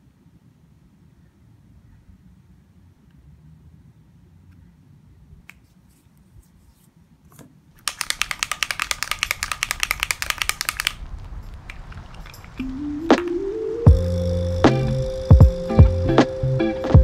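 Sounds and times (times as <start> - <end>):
rapid camera shutter clicks: 7.8 - 12.6.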